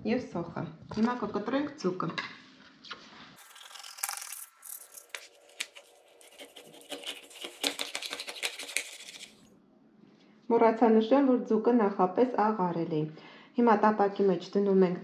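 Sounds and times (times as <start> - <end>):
knife cutting fish on a board: 5.0 - 9.2.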